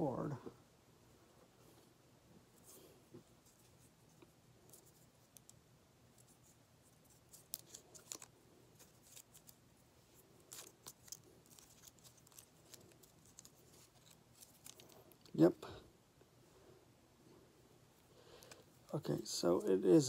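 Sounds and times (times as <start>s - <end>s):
packaging crackling and clicking: 7.3s - 9.6s, 10.5s - 15.3s.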